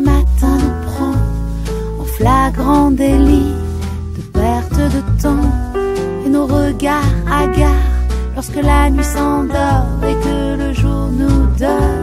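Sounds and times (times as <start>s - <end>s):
pop song with guitar and singing: 0.0s - 12.0s
steady bass line: 1.2s - 9.1s.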